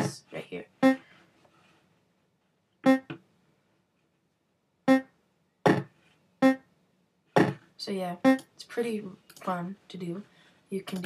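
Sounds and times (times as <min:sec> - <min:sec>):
electronic game bleeps: 0:02.8 - 0:03.1, 0:04.9 - 0:05.1, 0:06.4 - 0:06.6.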